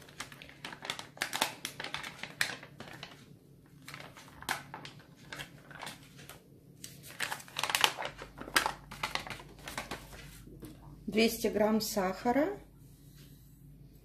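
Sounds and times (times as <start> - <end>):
sachet crinkling: 0.0 - 10.5.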